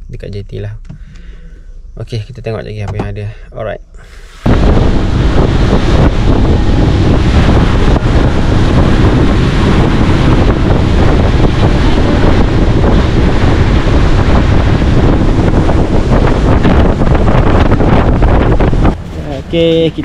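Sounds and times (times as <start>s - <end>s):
rushing sea water: 4.4s - 19.6s
wind buffeting microphone: 4.4s - 20.0s.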